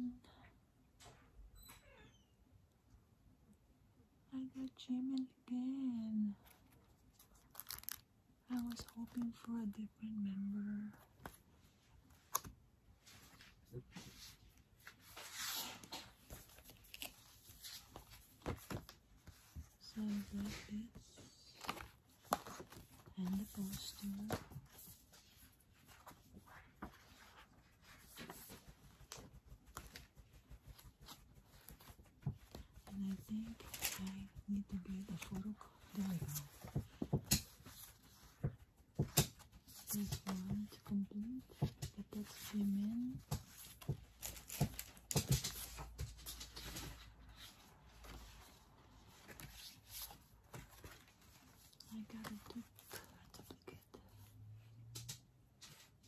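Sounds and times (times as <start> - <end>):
paper and card rustling: 6.4 - 9.8, 12.1 - 54.3
paper rustling and scraping: 13.0 - 32.8.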